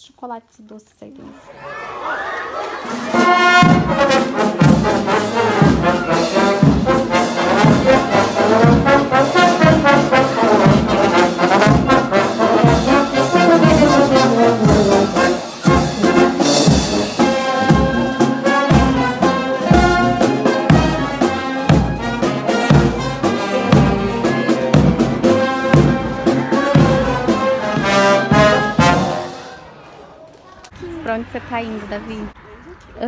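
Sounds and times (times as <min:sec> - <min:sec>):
brass instruments playing tune: 0:01.7 - 0:29.8
bass drum and cymbals beat: 0:03.6 - 0:29.2.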